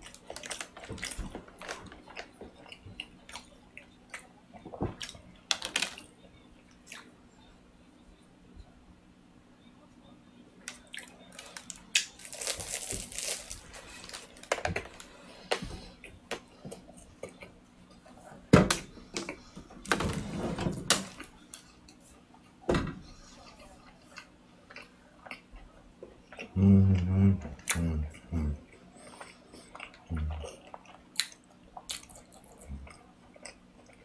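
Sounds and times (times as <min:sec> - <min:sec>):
chewing croissant: 0:00.0 - 0:07.1, 0:10.6 - 0:18.2, 0:23.2 - 0:34.0
crust crackling as it tears: 0:11.3 - 0:15.0.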